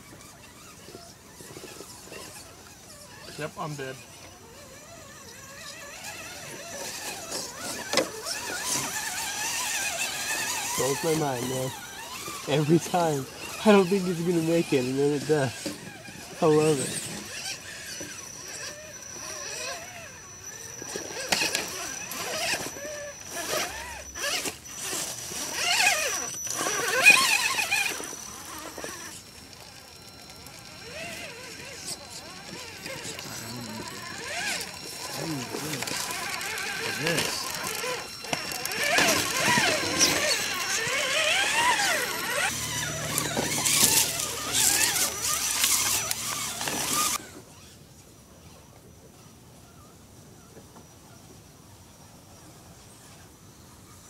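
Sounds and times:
electric motor whining: 0.0s - 47.8s
tyres crackling over leaves: 4.8s - 20.0s, 20.8s - 47.2s.

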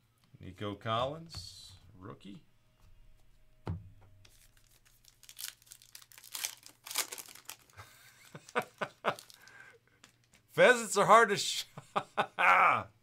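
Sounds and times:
foil wrapper crinkling: 4.2s - 10.4s.

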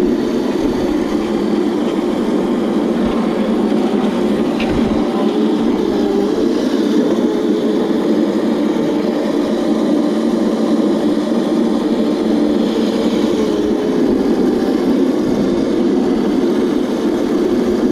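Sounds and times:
wheel noise: 0.0s - 10.8s
electric motor hum: 0.0s - 17.9s.

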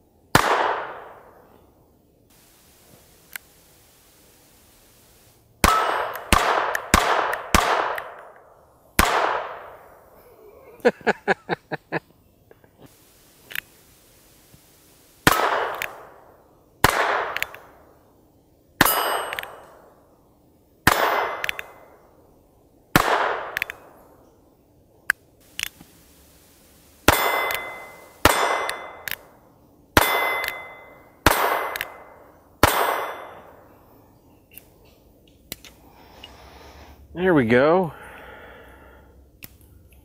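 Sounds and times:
revolver gunshots with ringing tail: 0.3s - 1.4s, 5.6s - 8.3s, 9.0s - 10.0s, 15.2s - 17.8s, 18.8s - 19.8s, 20.8s - 22.0s, 23.0s - 24.0s, 27.0s - 29.1s, 30.0s - 33.6s
steel plate target ringing: 18.8s - 19.7s, 27.1s - 29.1s, 30.0s - 33.5s.

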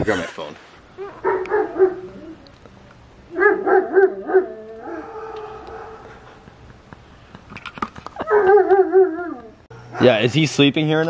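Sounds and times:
dog whining or howling: 1.0s - 2.6s, 3.3s - 6.1s, 8.2s - 10.1s.

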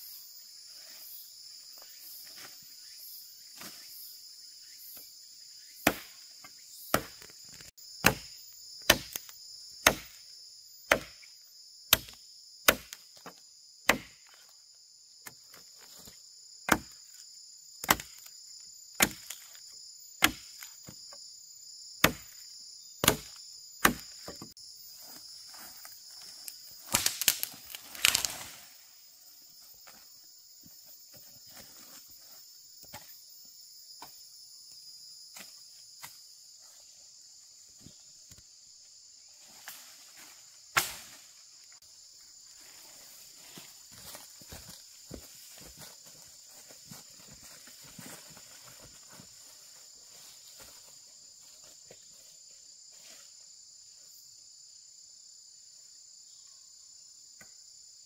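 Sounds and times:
insects droning: 0.0s - 58.0s
axe chopping wood: 5.8s - 6.2s, 6.9s - 10.2s, 10.9s - 11.3s, 11.9s - 14.4s, 16.7s - 17.0s, 17.8s - 18.3s, 19.0s - 19.5s, 20.2s - 21.0s, 22.0s - 22.4s, 23.0s - 24.5s, 26.8s - 28.4s, 40.7s - 41.2s.

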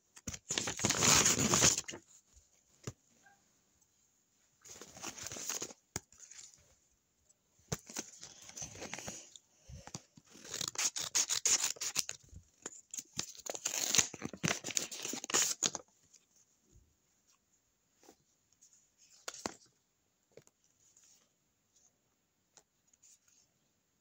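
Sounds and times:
paper crinkling and rustling: 0.1s - 3.0s, 4.6s - 6.7s
scissors snipping paper: 10.3s - 12.2s.

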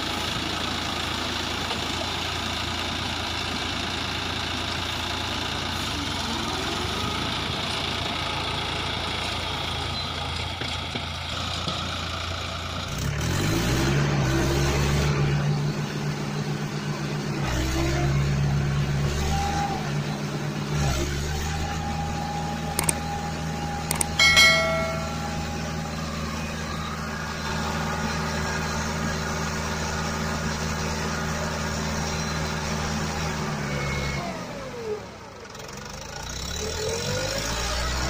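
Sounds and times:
tractor engine running: 0.0s - 36.8s
sharp clicks: 22.8s - 23.0s, 23.9s - 24.2s
short high tone: 23.9s - 25.7s.

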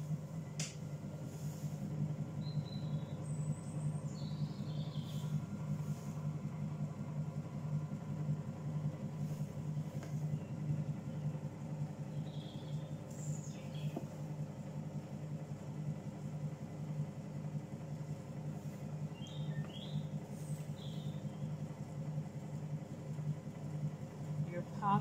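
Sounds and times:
potter's wheel motor humming: 0.0s - 25.0s.

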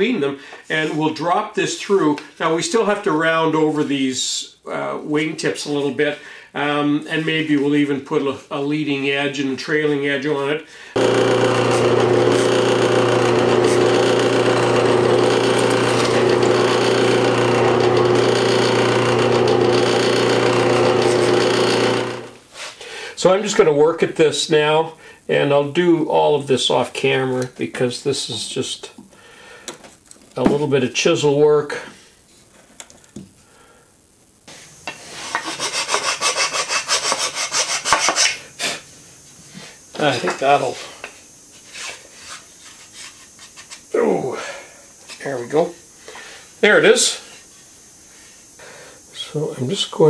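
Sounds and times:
drill press motor humming: 11.0s - 22.4s
hand tool rasping wood: 11.0s - 22.4s, 35.2s - 38.4s.

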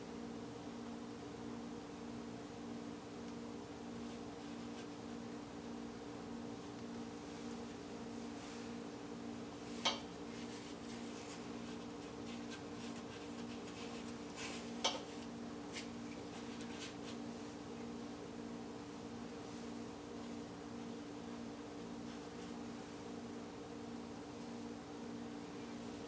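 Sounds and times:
steady low hum: 0.0s - 26.0s
paintbrush scrubbing on canvas: 10.3s - 14.8s, 15.7s - 17.5s.

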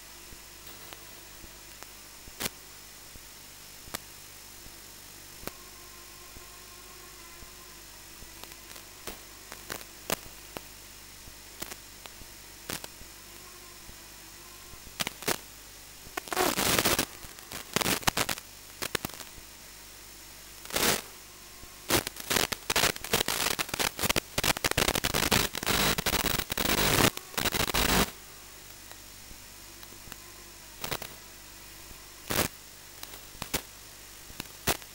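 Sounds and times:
loud static bursts: 0.0s - 34.9s
radio static hiss: 0.0s - 34.9s.

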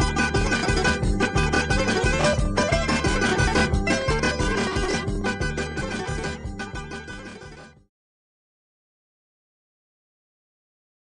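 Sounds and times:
instrumental music with plucked strings: 0.0s - 7.9s.

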